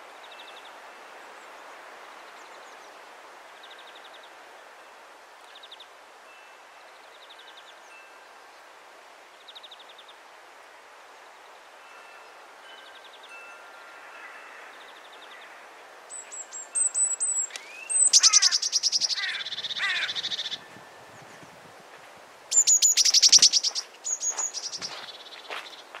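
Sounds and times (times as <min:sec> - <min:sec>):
songbird singing trill: 0:11.9 - 0:21.6, 0:22.5 - 0:26.0.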